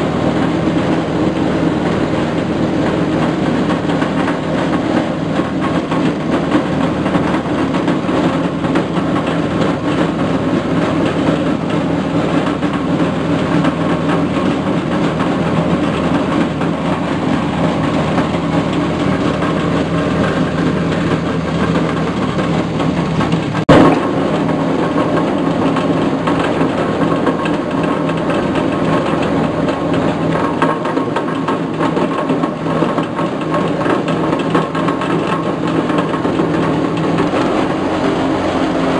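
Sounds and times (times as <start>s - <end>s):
foam shredder engine running: 0.0s - 38.9s
sharp knock: 22.8s - 28.5s.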